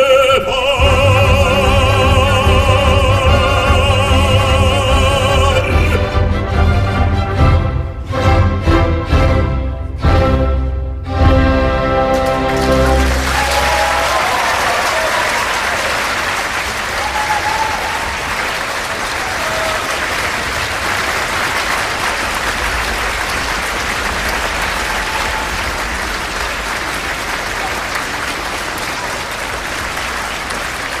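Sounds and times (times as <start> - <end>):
audience applauding: 12.1 - 31.0.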